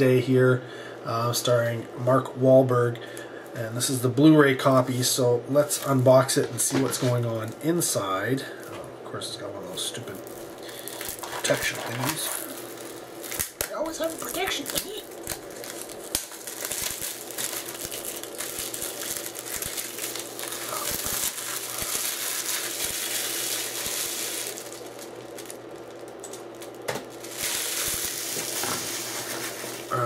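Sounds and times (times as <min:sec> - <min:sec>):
plastic wrapping peeled and crinkled: 0:03.8 - 0:08.9, 0:09.6 - 0:30.0.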